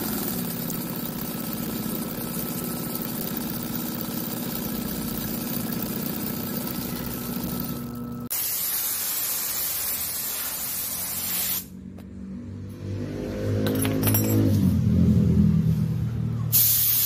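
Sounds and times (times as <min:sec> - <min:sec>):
low motor hum: 0:00.0 - 0:08.3
spray gun hissing: 0:08.3 - 0:11.7, 0:16.5 - 0:17.0.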